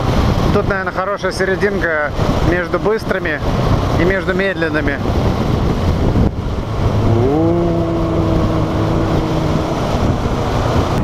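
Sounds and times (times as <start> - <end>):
wind rush: 0.0 - 11.0
motorcycle engine cruising: 5.1 - 11.0
tone gliding up: 6.6 - 11.0.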